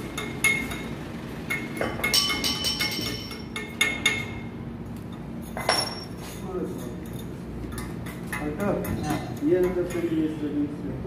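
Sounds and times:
metal tools clinking: 5.5s - 10.1s.

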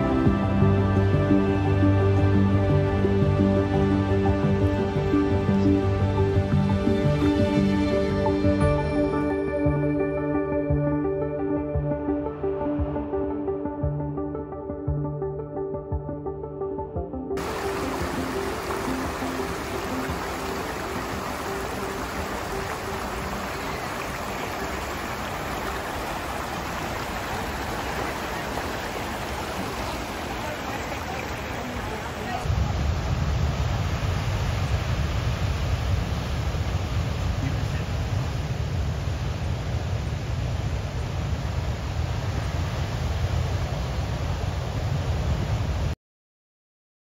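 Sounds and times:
faint music: 0.0s - 16.8s, 17.4s - 32.4s
stream rushing over rocks: 17.4s - 45.8s
heavy ocean surf breaking: 17.4s - 45.9s.

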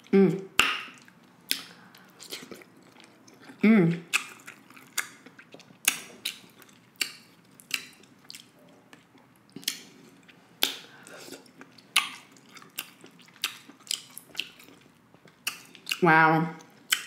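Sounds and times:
fingers squishing sauced food: 0.6s - 16.0s
wet chewing mouth smacks: 4.1s - 16.0s.

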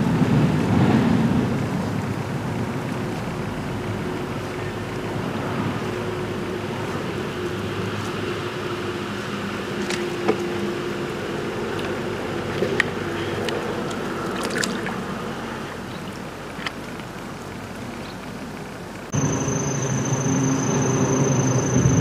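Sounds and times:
outdoor ambient hiss: 0.0s - 22.0s
small clicks and drip-like ticks: 15.8s - 19.1s.

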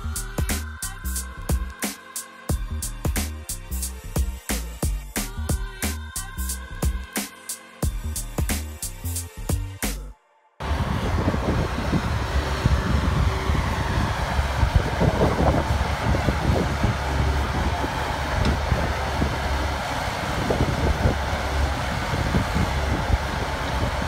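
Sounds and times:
lorry engine rumbling: 10.6s - 24.0s
wind buffeting microphone: 10.6s - 24.0s.

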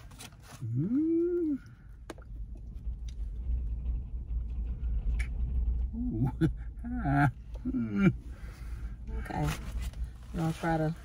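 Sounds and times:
low rumble: 0.0s - 11.0s
person humming: 0.6s - 1.7s.

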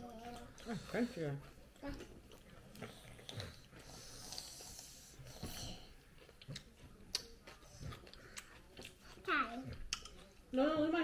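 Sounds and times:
soft chewing: 0.0s - 11.0s
breathing through the nose: 3.2s - 5.9s.

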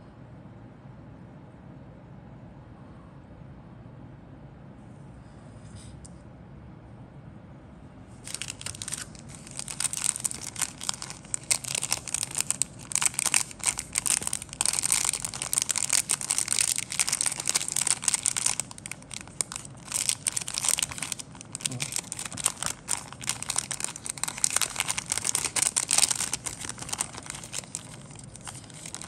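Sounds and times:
plastic bag crinkling: 8.2s - 29.0s.

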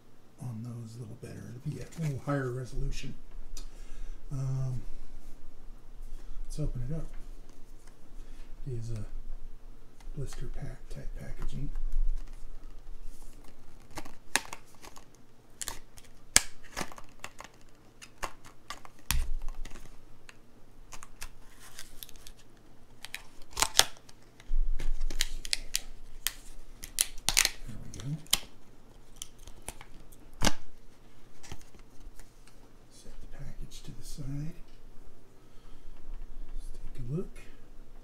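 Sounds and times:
plastic clicks snaps and crackles: 23.0s - 28.5s.

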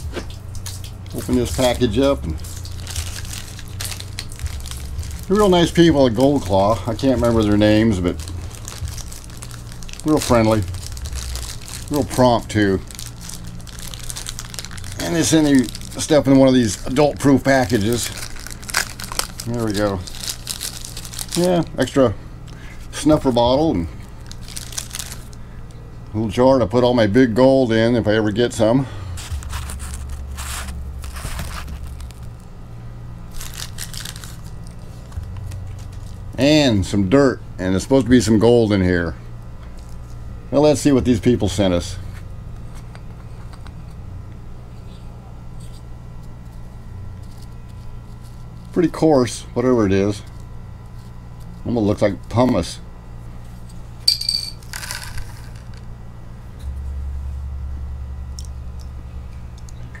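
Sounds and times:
steady low rumble: 0.0s - 26.7s
steady low hum: 0.0s - 60.0s
plastic bag crinkling: 0.6s - 22.0s, 24.1s - 25.4s, 29.2s - 32.4s, 33.3s - 36.3s, 54.1s - 55.8s.

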